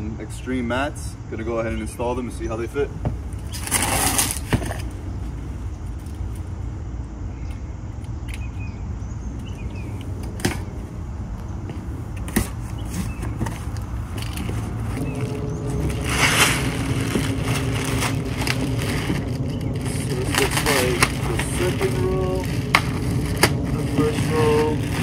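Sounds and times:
low background rumble: 0:00.0 - 0:25.0
cardboard ripping: 0:03.4 - 0:04.9, 0:12.4 - 0:25.0
plastic wrap rustling: 0:12.9 - 0:25.0.

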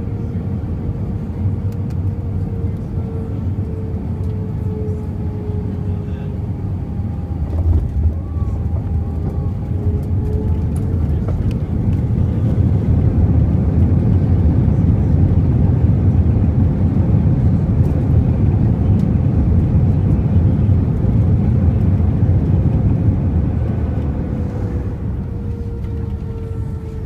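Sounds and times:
faint thin engine whine: 0:00.0 - 0:27.0
jet engines roaring in cabin: 0:00.0 - 0:27.0.

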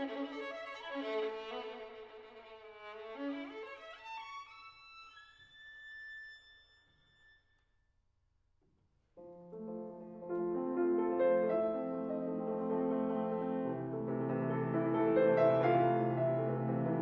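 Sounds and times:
solo violin: 0:00.0 - 0:07.4
piano chords: 0:09.2 - 0:17.0.

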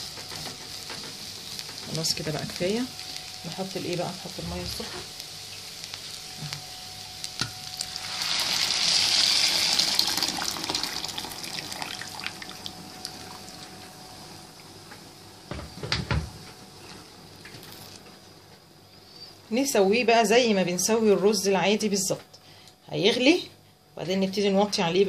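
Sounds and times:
hot water pouring hiss: 0:00.0 - 0:13.6.

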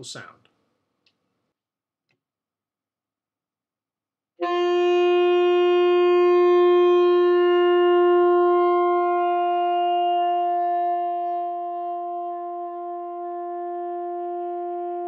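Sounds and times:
saxophone long tone: 0:04.4 - 0:15.0.

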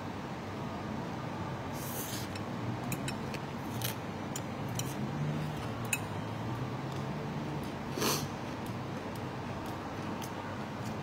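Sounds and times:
low steady hum: 0:00.0 - 0:11.0
person slurping noodles: 0:07.9 - 0:08.4
chewing: 0:08.5 - 0:11.0.

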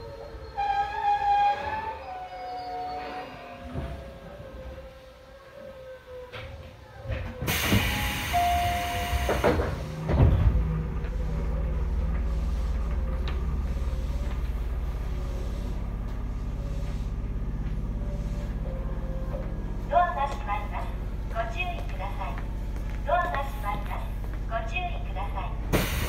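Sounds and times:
low pulsing train hum: 0:00.0 - 0:26.0
pneumatic doors thumping: 0:07.0 - 0:11.1, 0:25.7 - 0:26.0.

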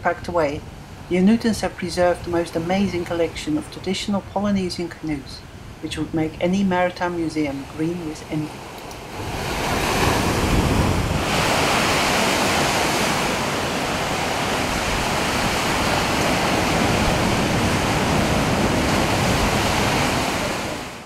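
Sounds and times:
ocean surf breaking: 0:08.5 - 0:21.0.

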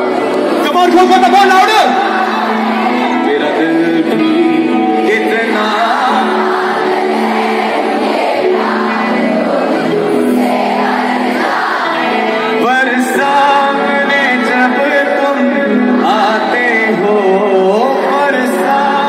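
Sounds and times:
man singing: 0:00.0 - 0:07.0, 0:12.0 - 0:19.0
amplified backing music: 0:00.0 - 0:19.0
crowd singing along: 0:00.0 - 0:19.0.

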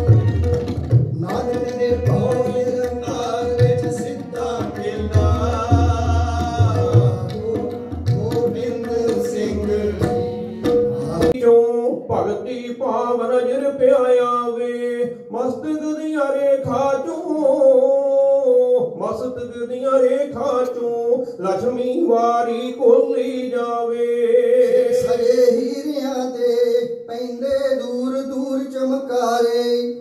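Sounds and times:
tabla strokes: 0:00.0 - 0:11.4
harmonium: 0:00.0 - 0:12.4.

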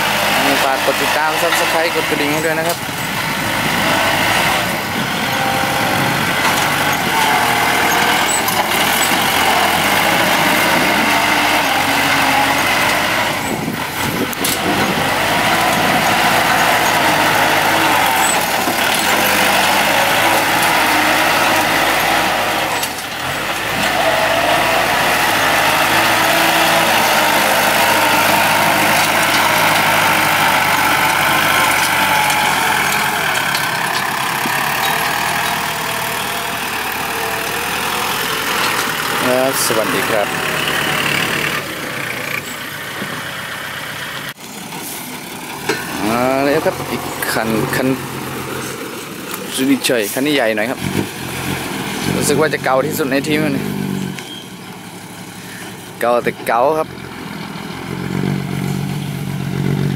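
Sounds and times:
blade pushing soil and rock: 0:00.0 - 0:41.6
tractor diesel engine under load: 0:00.0 - 0:59.9.

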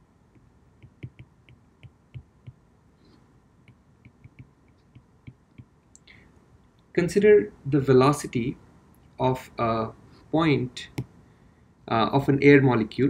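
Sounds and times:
stylus tapping on glass screen: 0:00.4 - 0:02.6, 0:03.6 - 0:05.8.

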